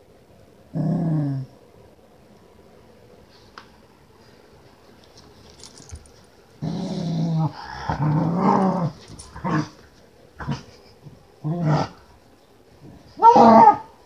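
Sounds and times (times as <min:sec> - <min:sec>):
dog play-growling: 0:06.6 - 0:10.8, 0:11.4 - 0:12.1.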